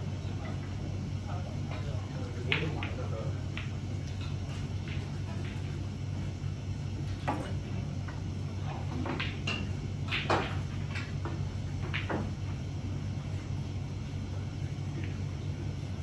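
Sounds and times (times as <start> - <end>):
snooker balls and cue clicking: 1.8 - 5.8, 7.0 - 12.6.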